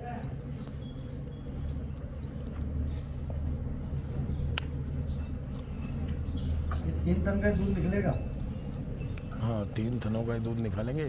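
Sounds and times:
low mechanical hum: 0.0 - 11.0
light clicks and clinks: 0.2 - 11.0.

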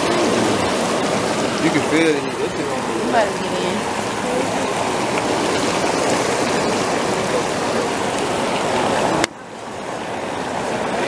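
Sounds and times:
hot tub jets bubbling: 0.0 - 11.0.

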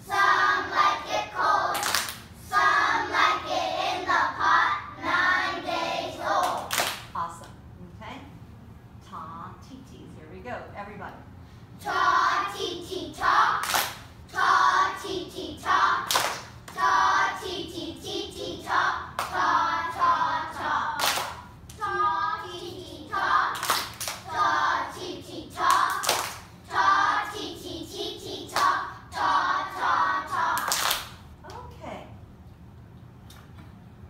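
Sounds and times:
children clapping: 1.7 - 2.2, 6.4 - 7.1, 13.6 - 14.0, 16.1 - 16.8, 21.0 - 21.4, 23.5 - 24.3, 25.7 - 26.5, 30.5 - 31.2
children chanting: 2.5 - 6.7, 11.8 - 30.8.

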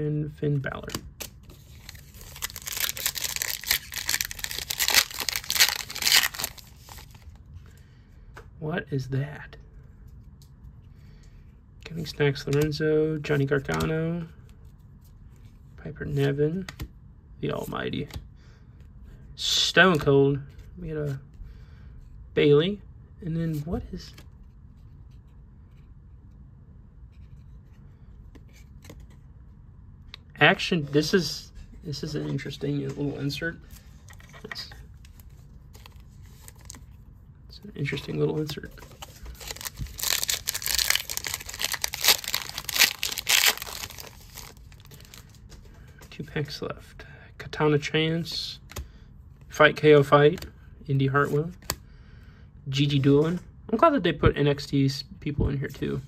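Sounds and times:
low room hum: 0.0 - 56.0
foil wrapper tearing and crinkling: 1.9 - 7.2, 39.0 - 45.2.

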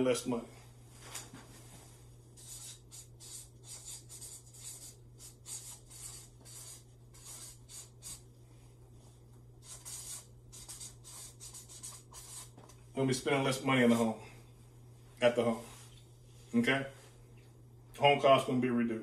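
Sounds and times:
marker scratching on paper: 2.4 - 8.4, 9.6 - 12.7.

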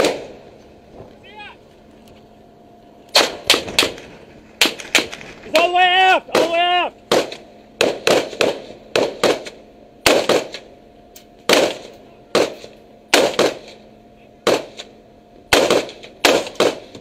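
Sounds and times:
rifle shots: 0.0 - 0.5, 3.1 - 5.7, 6.3 - 10.7, 11.4 - 13.8, 14.4 - 17.0
faint steady hum: 0.0 - 17.0.

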